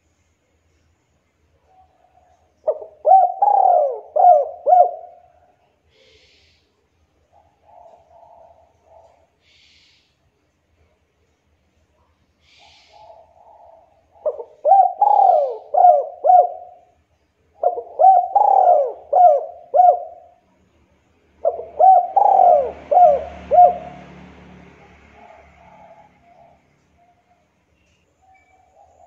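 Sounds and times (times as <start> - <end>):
dove cooing: 1.7 - 6.1, 7.3 - 9.4, 12.5 - 20.4, 21.4 - 27.5.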